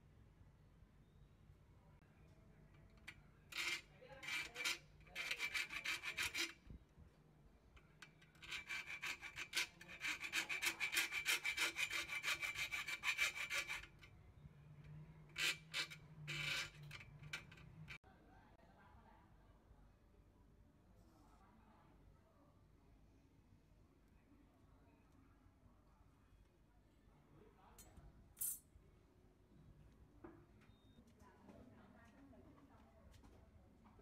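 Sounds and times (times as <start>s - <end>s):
metal rod scratching steel: 3.5s - 6.6s, 8.0s - 14.1s, 15.3s - 18.0s.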